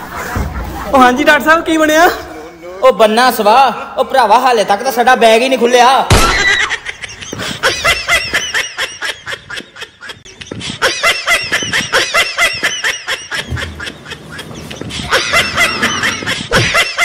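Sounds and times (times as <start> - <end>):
rapid high laughter: 6.4 - 17.0.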